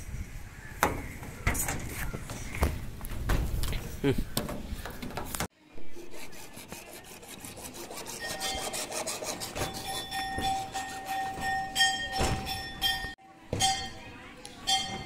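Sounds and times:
hacksaw cutting plastic pipe: 6.1 - 11.4.

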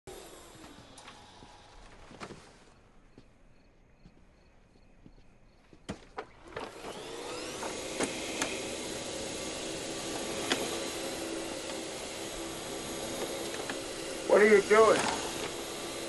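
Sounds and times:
vacuum cleaner motor whining: 0.1 - 2.6, 6.3 - 16.0
vacuum cleaner knocking: 6.6 - 16.0.

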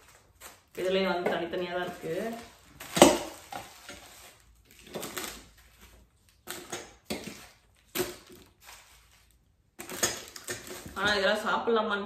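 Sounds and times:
plastic packets crinkling: 0.0 - 11.2.

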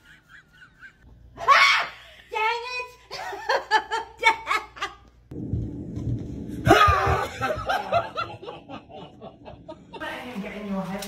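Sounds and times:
person laughing: 0.0 - 1.0.

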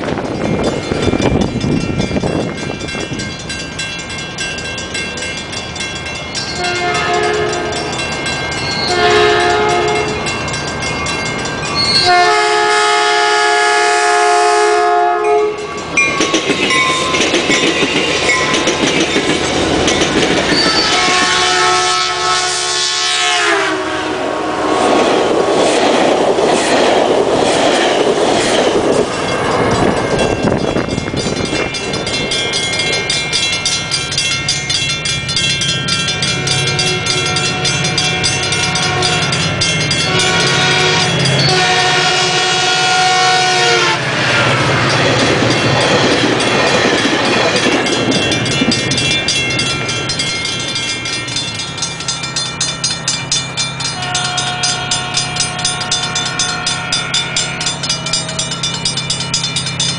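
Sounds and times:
train wheels rumbling on rails: 0.0 - 59.9
train air horn blasts: 6.6 - 7.8, 8.9 - 10.2, 11.9 - 15.7, 20.6 - 25.0, 36.4 - 39.3, 40.0 - 44.2, 54.0 - 57.2.

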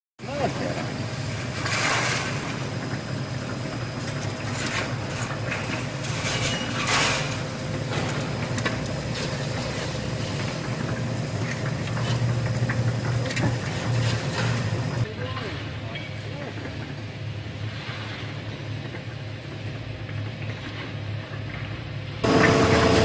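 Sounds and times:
roll forming machine humming: 0.2 - 23.0
brief loud machine noises: 22.2 - 23.0.

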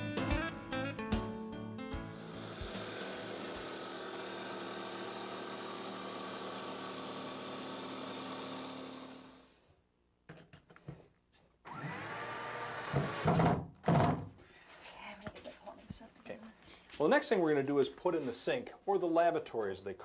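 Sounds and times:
jigsaw cutting: 2.0 - 9.5, 11.7 - 14.2
cordless drill driving screw: 2.1 - 9.4, 11.6 - 14.1.

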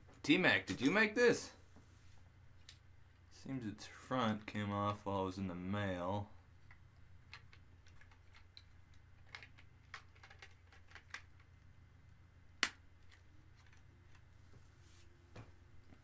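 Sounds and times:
plastic lego pieces clicking: 7.3 - 11.5.

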